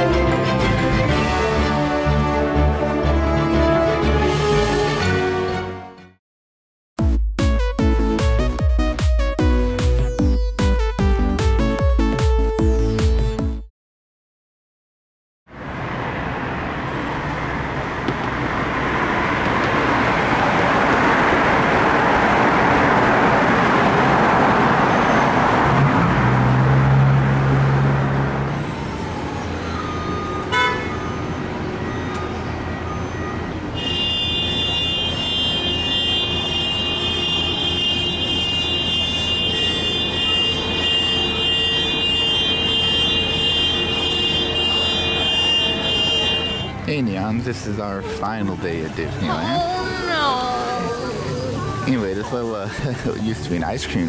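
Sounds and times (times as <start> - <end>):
road traffic rushing past: 15.5 - 54.0
low vehicle horn: 30.0 - 31.4, 33.0 - 47.0.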